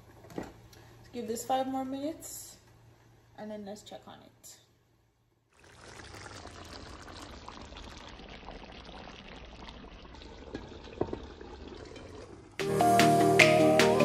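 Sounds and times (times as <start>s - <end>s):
food simmering in a pan: 5.5s - 12.6s.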